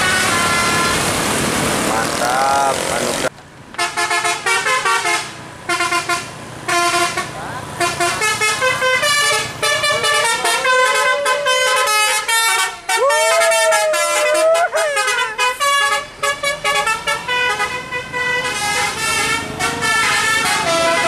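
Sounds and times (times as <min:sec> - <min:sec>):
bus horn playing melody: 0:00.0 - 0:01.2, 0:03.8 - 0:21.0.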